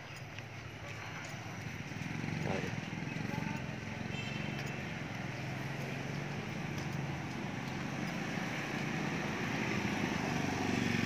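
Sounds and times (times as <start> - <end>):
motorcycle engine running: 0.9 - 11.0.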